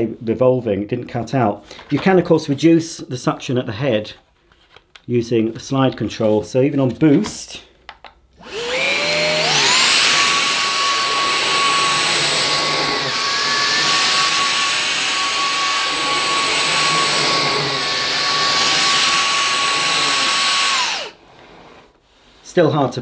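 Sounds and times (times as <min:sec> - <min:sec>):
vacuum brush head on carpet: 0:08.0 - 0:21.2
vacuum cleaner motor whine: 0:08.4 - 0:21.7.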